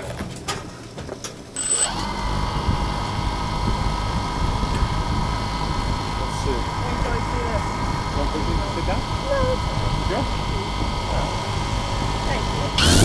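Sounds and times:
drone motors and propellers: 1.4s - 13.0s.

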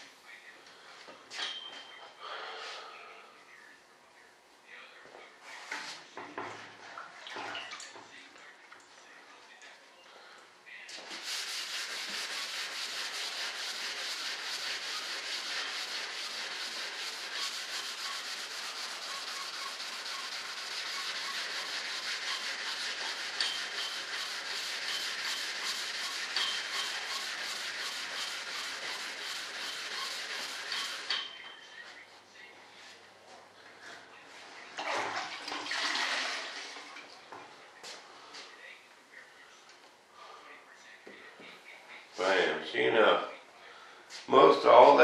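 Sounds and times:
sandpaper rubbing surface: 11.0s - 31.1s.

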